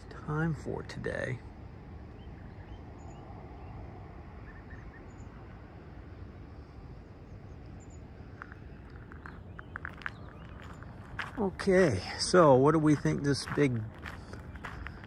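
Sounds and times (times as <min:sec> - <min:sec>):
steady low rumble: 0:00.0 - 0:15.0
faint bird chirps: 0:04.4 - 0:05.4.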